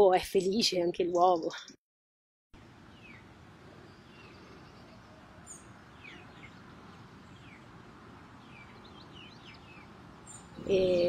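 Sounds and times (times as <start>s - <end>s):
small birds chirping: 2.8s - 11.0s.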